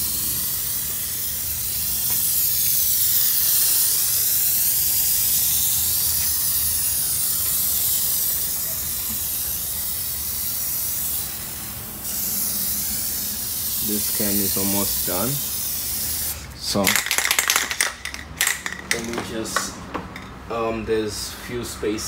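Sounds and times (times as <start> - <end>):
aerosol can spraying: 0.0 - 16.5.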